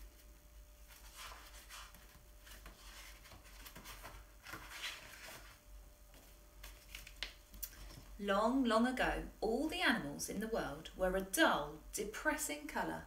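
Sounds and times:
book pages rustling: 0.8s - 8.0s.

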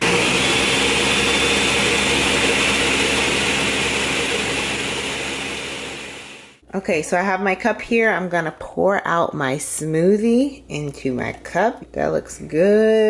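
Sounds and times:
blender running: 0.0s - 6.6s.

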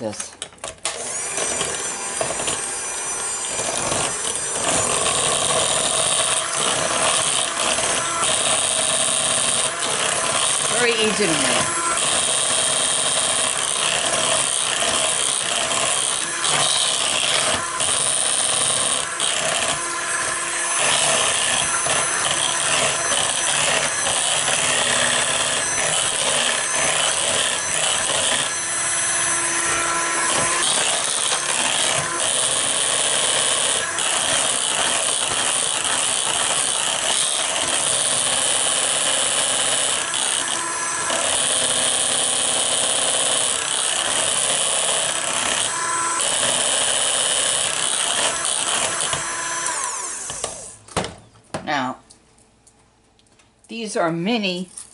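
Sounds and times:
electric hand mixer whirring: 0.0s - 50.9s.

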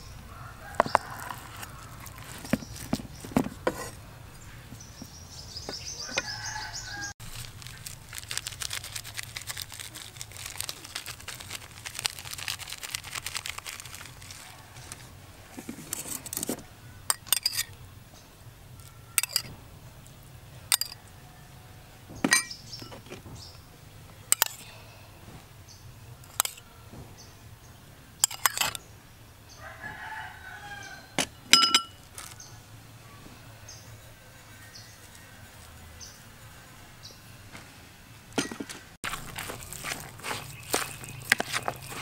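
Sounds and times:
rooster crowing: 0.3s - 2.5s, 5.9s - 7.2s, 29.5s - 31.2s
metal spoon clinking on ceramic bowl: 17.1s - 17.7s, 19.2s - 19.5s, 28.2s - 28.8s, 31.5s - 32.0s.

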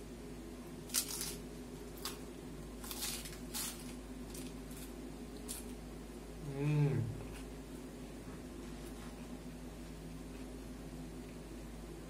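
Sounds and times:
steady low hum: 0.0s - 12.0s
crunchy food being chewed: 0.8s - 5.8s.

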